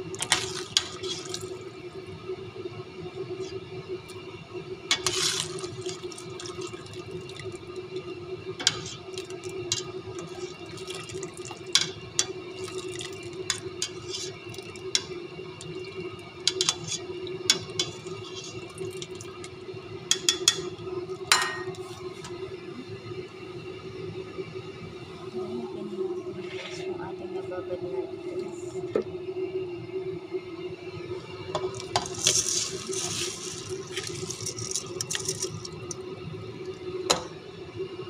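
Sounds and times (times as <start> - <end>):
broth dripping through skimmer: 0.0 - 3.5, 4.8 - 22.4, 31.6 - 37.3
steady hum: 0.0 - 38.0.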